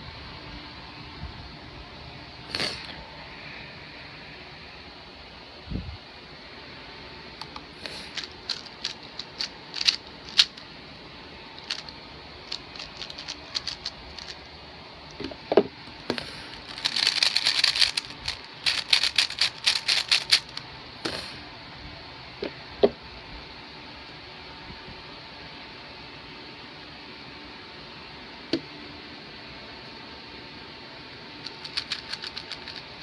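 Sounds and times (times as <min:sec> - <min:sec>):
speed cube clicking: 0:07.4 - 0:10.6, 0:11.6 - 0:14.5, 0:16.6 - 0:20.6, 0:31.4 - 0:33.0.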